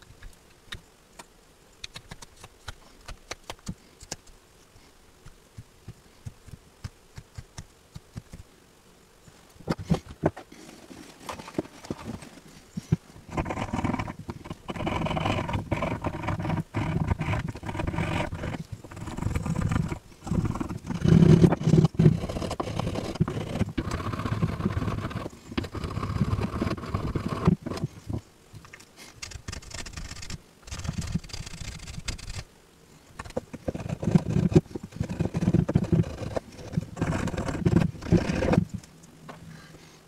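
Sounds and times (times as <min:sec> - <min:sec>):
knife shaving wood: 0:09.9 - 0:28.0, 0:29.0 - 0:32.4, 0:33.2 - 0:38.8.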